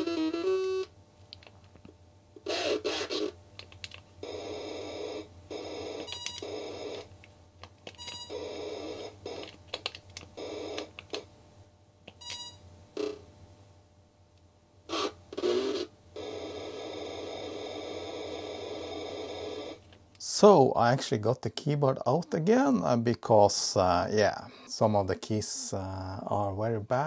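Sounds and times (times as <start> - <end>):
electronic buzzing bursts: 0.0 - 0.9, 2.4 - 3.4, 4.2 - 7.2, 8.0 - 9.7, 14.9 - 19.9.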